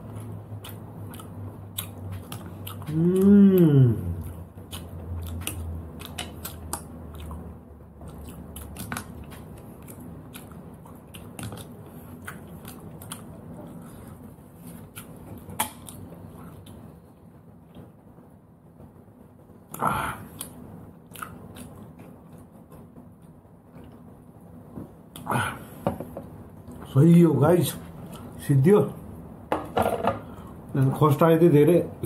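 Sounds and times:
person chewing: 0.0 - 17.8, 19.6 - 25.8, 27.9 - 28.4.

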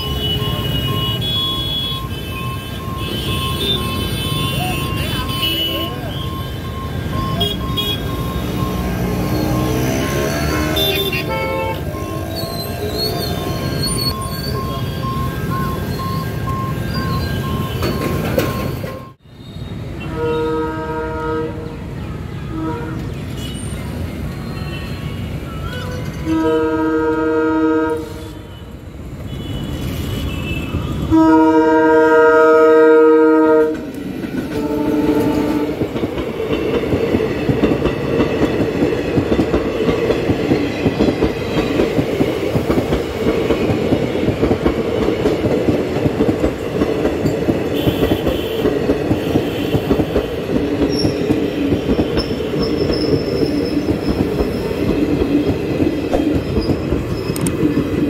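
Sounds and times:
train coaches rumbling past: 0.0 - 58.0
train air horn blasts: 9.2 - 12.3, 20.0 - 23.5, 25.6 - 28.7, 29.4 - 33.9, 34.5 - 35.8, 47.8 - 50.4
wheels clacking over rail joints: 15.5 - 19.2, 33.5 - 58.0.

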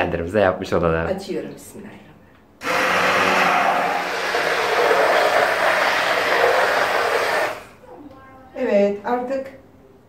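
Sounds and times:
immersion blender running in pot: 2.6 - 7.8.

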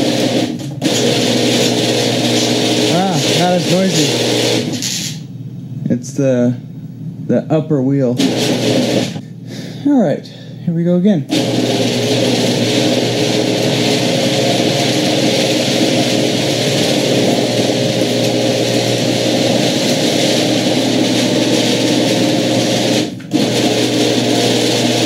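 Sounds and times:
garage door opener drone: 0.0 - 5.2, 8.2 - 9.3, 11.3 - 25.0.

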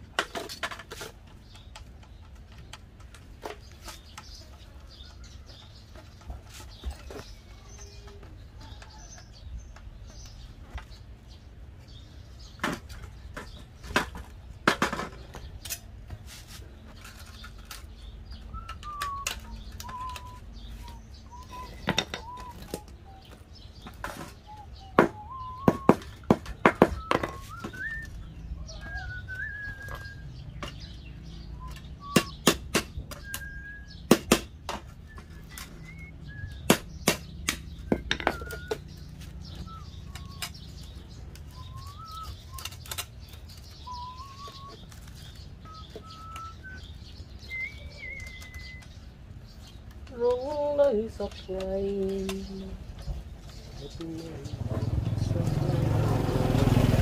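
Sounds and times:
bird whistling call: 18.3 - 34.3, 34.9 - 49.0.

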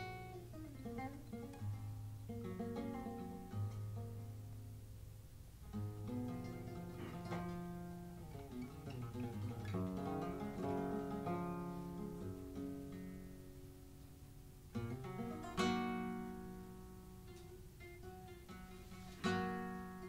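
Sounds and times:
flamenco guitar plucked melody: 0.0 - 20.0
loud strummed guitar chords: 5.7 - 13.5.

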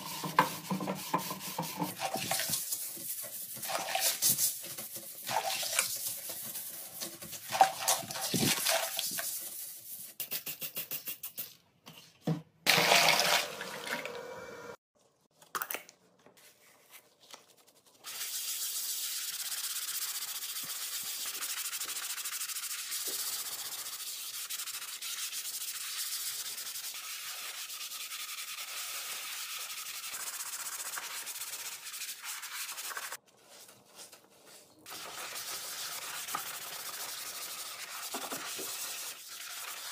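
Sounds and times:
toilet brush scrubbing in water: 0.0 - 9.6, 34.8 - 39.9
scrubbing a ceramic sink: 0.0 - 10.2, 17.6 - 39.9.

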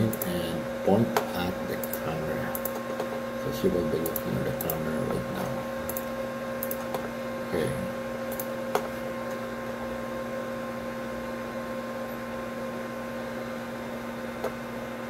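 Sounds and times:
steady electrical hum: 0.0 - 15.0
sharp click: 1.8 - 3.1, 5.9 - 7.0, 8.3 - 8.9.

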